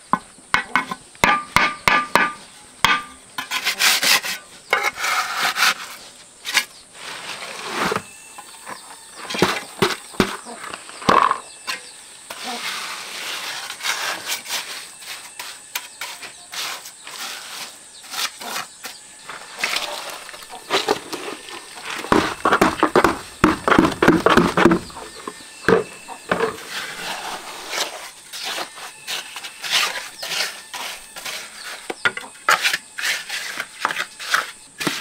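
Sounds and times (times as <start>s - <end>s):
trowel tapping on bricks: 0.1s - 3.6s, 22.0s - 26.5s
high insect drone: 0.1s - 35.0s
trowel scraping wet mortar: 2.9s - 8.1s, 9.2s - 35.0s.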